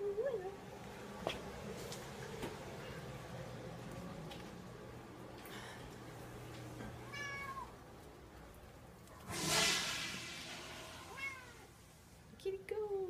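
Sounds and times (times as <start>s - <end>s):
cat meowing: 7.1s - 7.8s, 11.1s - 11.7s
loud rush of noise: 9.2s - 11.9s.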